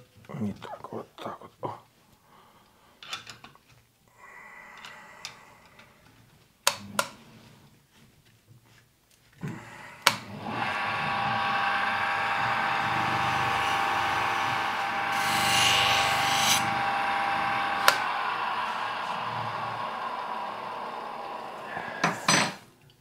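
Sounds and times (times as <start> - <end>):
bench grinder whining: 9.5 - 22.6
knife blade hissing on wheel: 12.4 - 22.4.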